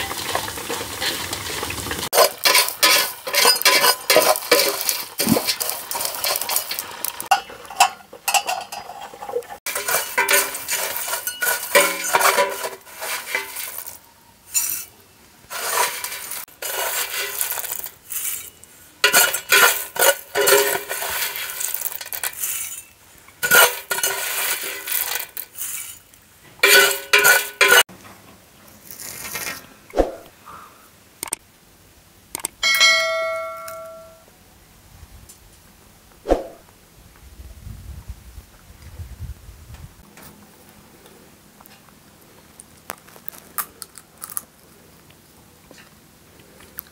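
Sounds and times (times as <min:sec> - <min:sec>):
metal spatula scraping metal pot: 0:02.1 - 0:14.9, 0:15.5 - 0:27.9
short chime: 0:32.6 - 0:34.2.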